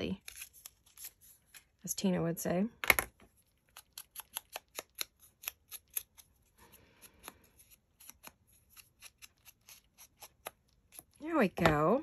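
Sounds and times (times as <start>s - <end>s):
scissors and paper clicks: 3.7s - 6.3s.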